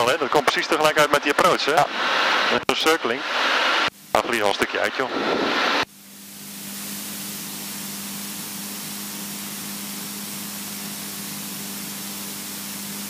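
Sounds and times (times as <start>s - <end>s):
headset intercom hiss: 0.0s - 5.9s.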